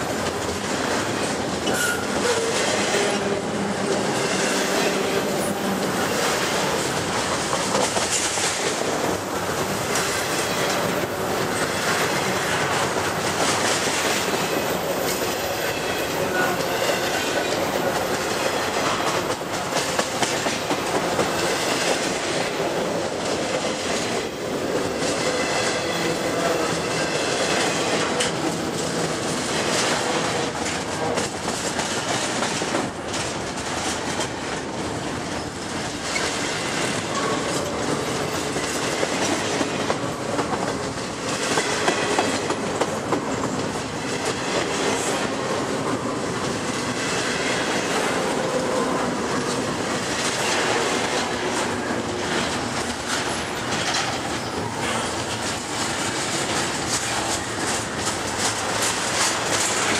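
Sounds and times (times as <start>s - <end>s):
freight train wheels rumbling: 0.0s - 59.9s.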